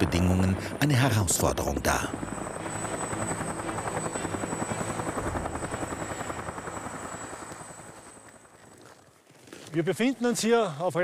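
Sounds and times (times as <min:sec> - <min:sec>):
helicopter rotor beating: 0:00.0 - 0:09.1
high whine: 0:01.4 - 0:08.5.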